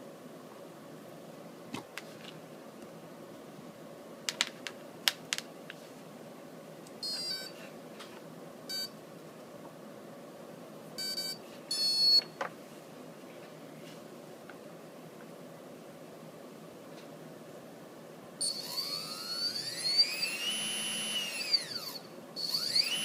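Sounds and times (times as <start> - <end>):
motor controller beeps: 7.0 - 7.5, 8.7 - 8.9, 11.0 - 12.3, 18.4 - 23.0.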